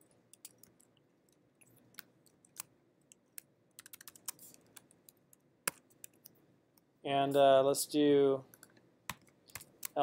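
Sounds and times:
keyboard typing: 0:00.3 - 0:06.4, 0:08.5 - 0:10.0.

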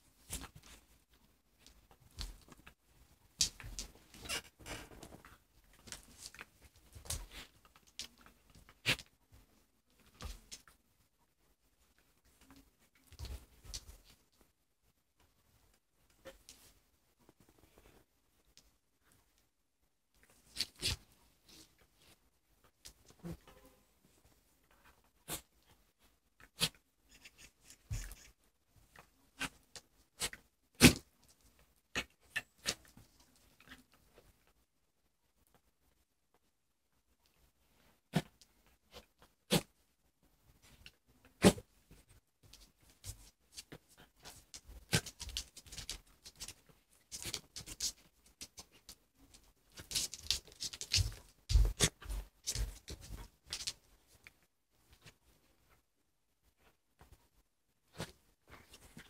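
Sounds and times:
paws scrabbling on wooden floor: 0:42.5 - 0:53.8.

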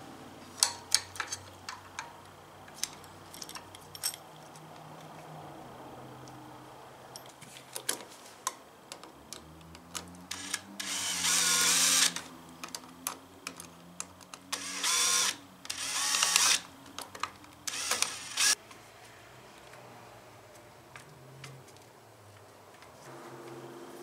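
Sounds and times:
cordless drill driving screws: 0:10.3 - 0:12.2, 0:14.6 - 0:16.6, 0:17.7 - 0:18.6.

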